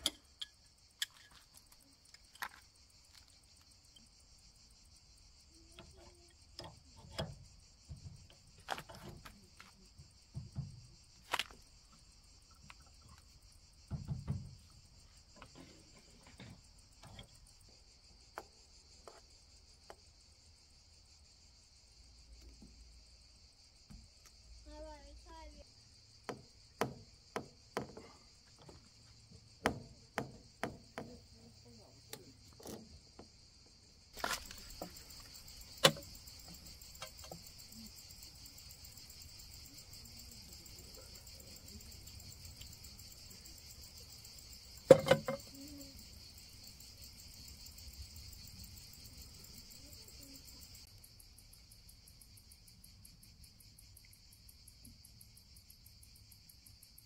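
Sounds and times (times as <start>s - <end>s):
clicks and knocks handling pipe: 0.0s - 3.3s, 5.8s - 9.8s, 15.3s - 17.4s, 34.2s - 37.4s, 44.9s - 45.5s
high insect chorus: 0.0s - 57.0s.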